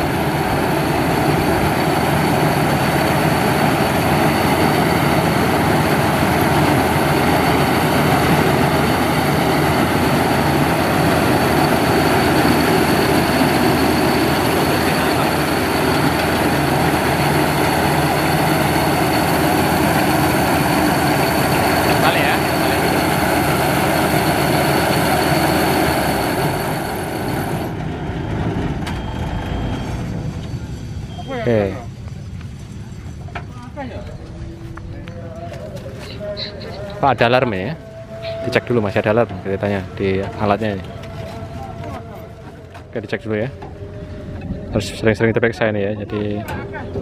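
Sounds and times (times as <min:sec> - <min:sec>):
faint high whine: 0:00.0 - 0:27.8
combine harvester running: 0:00.0 - 0:45.0.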